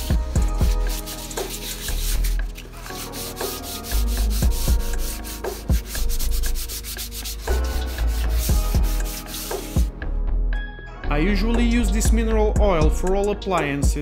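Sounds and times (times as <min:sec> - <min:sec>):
background music with low beat: 0:00.0 - 0:14.0
sandpaper rasping on wood: 0:00.4 - 0:09.9.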